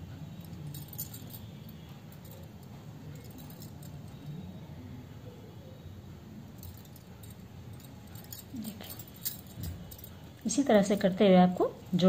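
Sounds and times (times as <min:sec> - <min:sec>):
low background hum: 0:00.0 - 0:12.0
crochet hook clinking and yarn rustling: 0:06.6 - 0:11.8.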